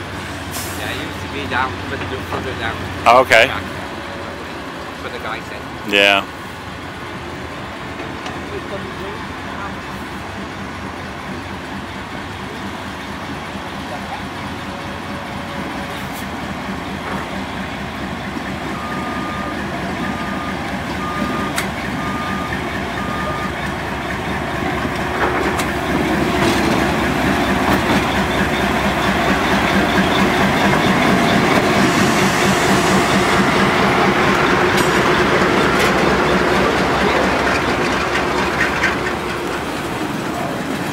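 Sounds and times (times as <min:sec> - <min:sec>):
locomotive engine rumble: 0:00.0 - 0:40.9
wheels rolling on rails: 0:34.2 - 0:40.9.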